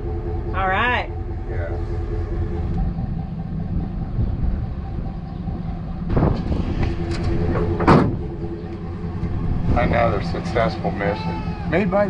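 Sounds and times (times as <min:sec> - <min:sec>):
pickup engine running: 0:00.0 - 0:12.0
wind on microphone: 0:02.6 - 0:10.2
metallic clatter: 0:06.0 - 0:11.2.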